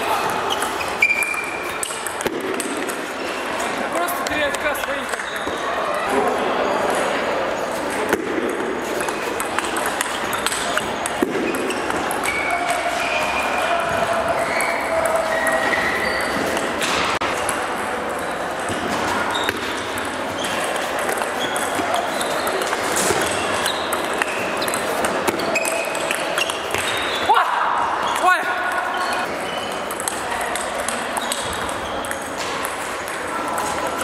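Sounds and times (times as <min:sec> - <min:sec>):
sports hall background din: 0:00.0 - 0:34.0
table tennis ball clicking: 0:07.9 - 0:12.8.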